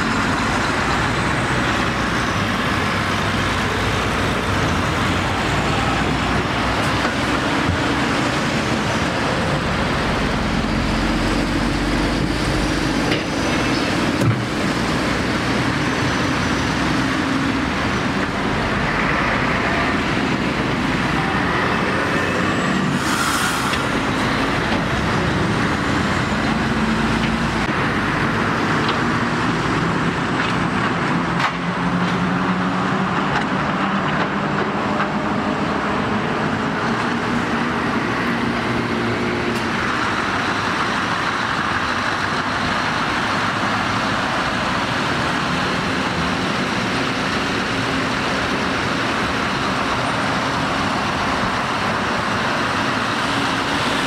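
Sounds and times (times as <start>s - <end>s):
diesel trucks passing: 0.0s - 54.0s
road and tyre noise: 0.0s - 54.0s
brief air hiss: 23.0s - 23.8s.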